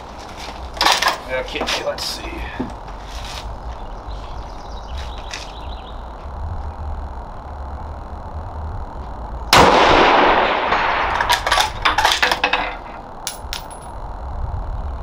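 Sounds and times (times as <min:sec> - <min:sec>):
rifle shot echoing: 0:09.5 - 0:11.5.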